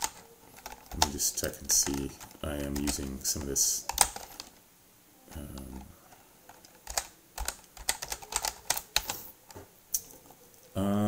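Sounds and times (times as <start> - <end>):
keyboard typing clicks: 0.0 - 4.5, 6.5 - 9.2
man humming: 10.7 - 11.0.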